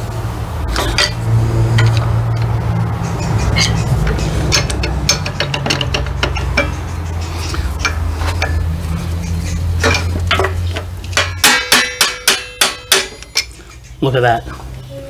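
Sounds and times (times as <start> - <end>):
ringing metal taps: 0.7 - 1.2, 3.4 - 7.0, 9.8 - 13.5
metal tools clinking and scraping: 0.7 - 14.7.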